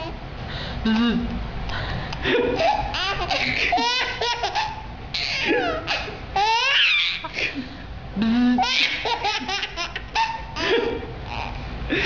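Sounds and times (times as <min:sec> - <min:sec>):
baby laughing: 0:02.2 - 0:07.6, 0:08.6 - 0:11.6.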